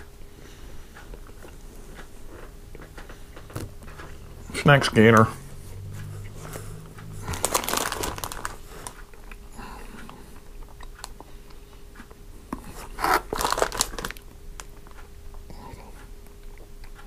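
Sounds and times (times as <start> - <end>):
plastic wrappers crinkling: 7.2 - 9.0, 13.0 - 14.7.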